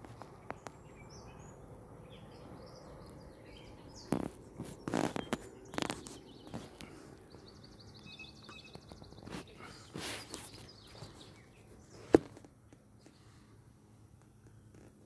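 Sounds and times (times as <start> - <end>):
rustling: 4.1 - 7.3, 8.5 - 13.5.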